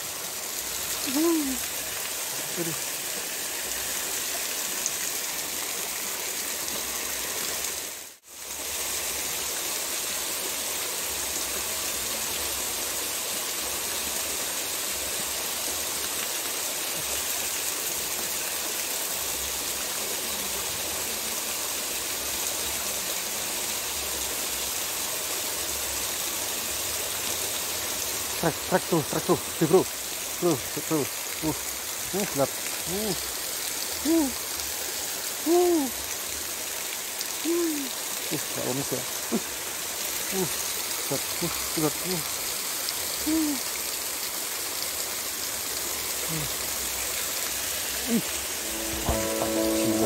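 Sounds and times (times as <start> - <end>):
water spilling over weir: 25.7 - 49.0.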